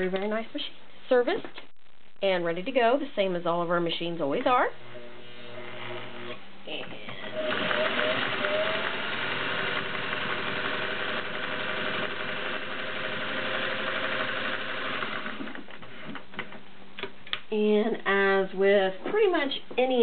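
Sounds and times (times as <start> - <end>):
sewing machine stitching: 7.3 - 15.7.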